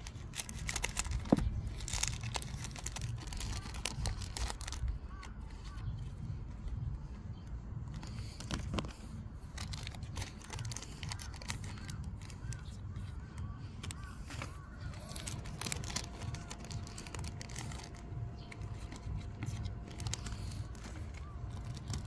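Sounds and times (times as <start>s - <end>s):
foil wrappers tearing and crinkling: 0.0s - 5.9s, 7.9s - 22.0s
trading cards being handled: 0.0s - 22.0s.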